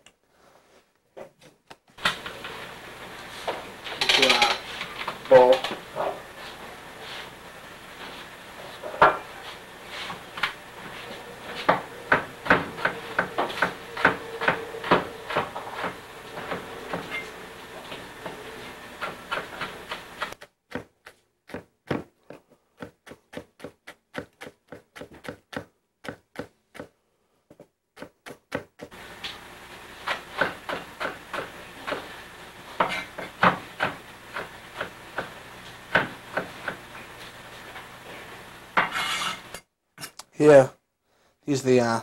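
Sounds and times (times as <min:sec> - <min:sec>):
knife chopping on cutting board: 0:11.5 - 0:17.2, 0:19.0 - 0:26.9, 0:27.5 - 0:29.0, 0:30.0 - 0:32.1, 0:32.8 - 0:36.8.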